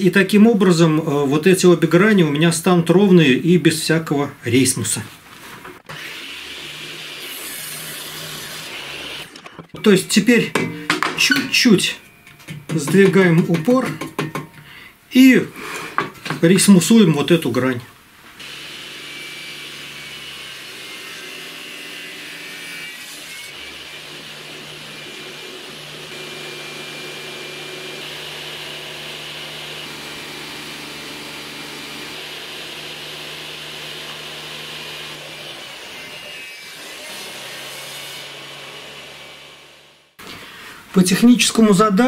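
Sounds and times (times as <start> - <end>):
table saw cutting wood: 5.9 - 9.4, 18.4 - 40.2.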